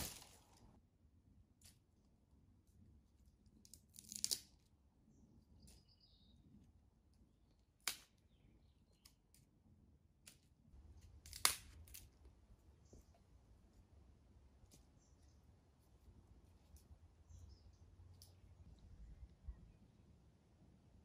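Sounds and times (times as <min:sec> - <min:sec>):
wood snaps and rustles: 0:00.0 - 0:00.7, 0:03.6 - 0:04.6, 0:10.2 - 0:12.3
fire crackling: 0:00.0 - 0:00.8, 0:10.2 - 0:12.4.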